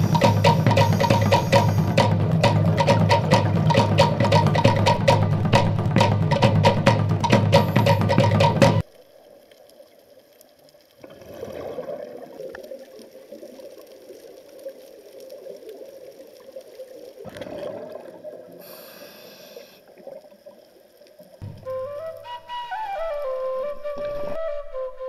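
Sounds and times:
diver breathing through regulator: 0.0s - 2.1s, 18.6s - 19.9s
exhaled bubbles underwater: 0.0s - 6.6s, 11.0s - 18.8s
flute music: 0.0s - 8.8s, 21.4s - 25.0s
percussive music: 0.0s - 8.8s, 21.4s - 23.2s.

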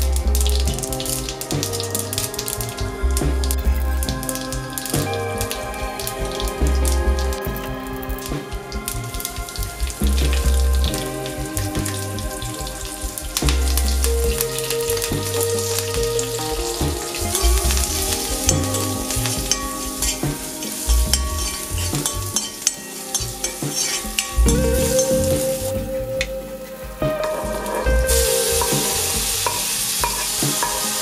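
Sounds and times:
background music: 0.0s - 31.0s
food sizzling in hot oil: 6.2s - 25.7s, 28.1s - 31.0s
steel spatula stirring: 16.3s - 25.2s, 28.1s - 31.0s.

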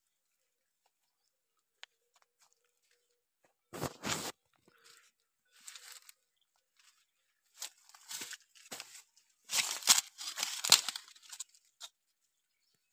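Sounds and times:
dry leaves crackling: 5.5s - 6.2s, 7.6s - 11.7s.

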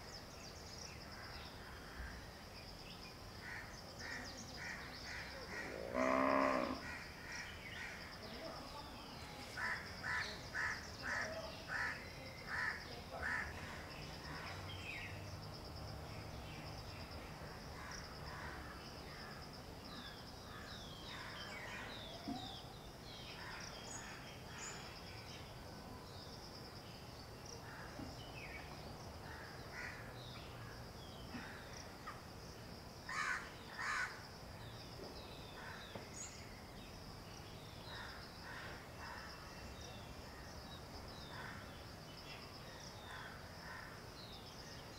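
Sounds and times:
high insect drone: 0.0s - 44.9s
crow cawing: 4.6s - 8.0s, 29.3s - 30.1s, 33.1s - 34.2s.

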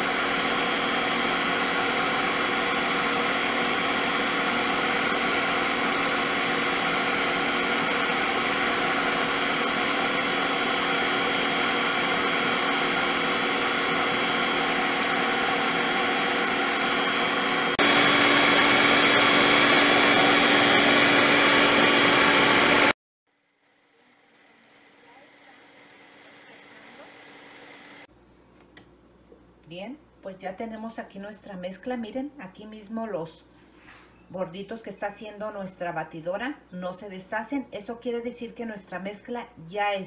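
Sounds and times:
stand mixer motor whisking: 0.0s - 23.0s, 24.2s - 28.1s.

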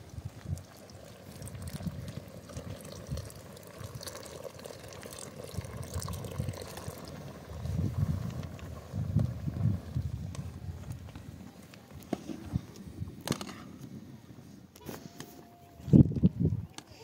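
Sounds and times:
milk pouring into pot: 0.2s - 8.7s.

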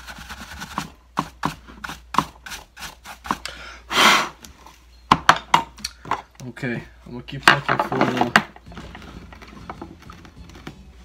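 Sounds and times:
brush scrubbing plastic: 0.0s - 3.4s.

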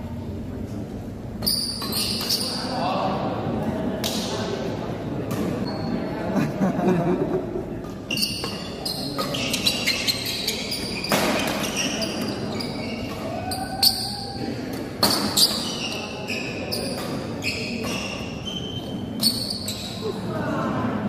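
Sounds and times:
shoes squeaking on court: 1.4s - 2.7s, 5.3s - 6.1s, 7.8s - 20.2s
spectator chatter: 2.2s - 21.0s.

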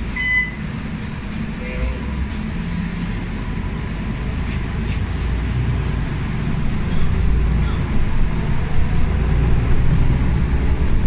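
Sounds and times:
bus engine rumbling: 0.0s - 11.0s
electronic warning beep: 0.2s - 0.6s.

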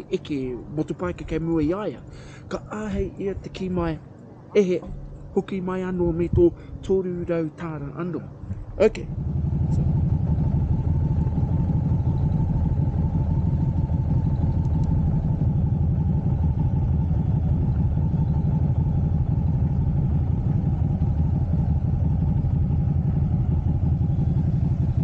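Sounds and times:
motorcycle engine at low revs: 8.3s - 25.0s.

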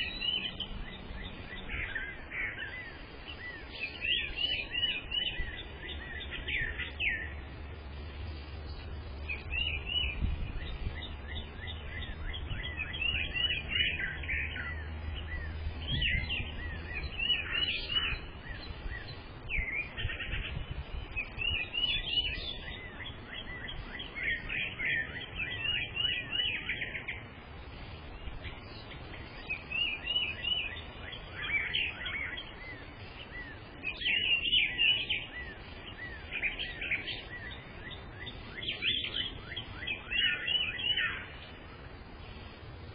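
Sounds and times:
songbirds chirping: 0.0s - 42.9s.

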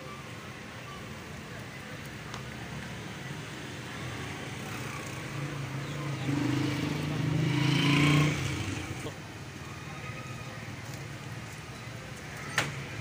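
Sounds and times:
vehicle engine approaching: 2.6s - 9.2s.

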